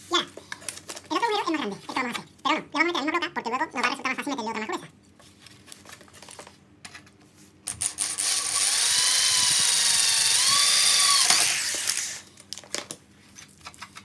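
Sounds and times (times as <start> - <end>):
electric drill whining: 7.7 - 12.3.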